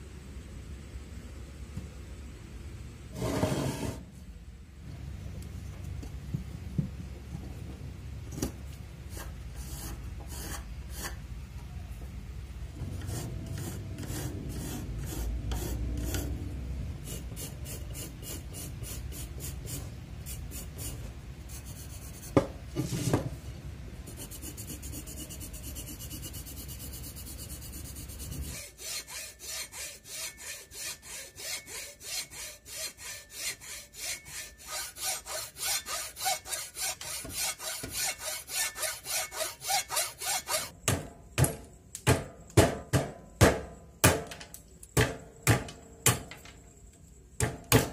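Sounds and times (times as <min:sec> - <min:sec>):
pencil scratching on wood: 0:24.1 - 0:40.7
hand saw cutting wood: 0:26.5 - 0:40.7.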